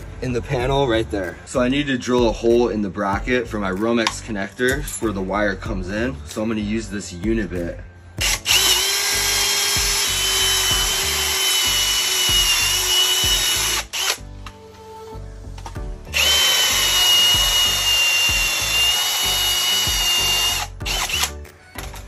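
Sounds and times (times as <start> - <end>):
cordless drill whining: 8.2 - 14.2, 16.1 - 22.0.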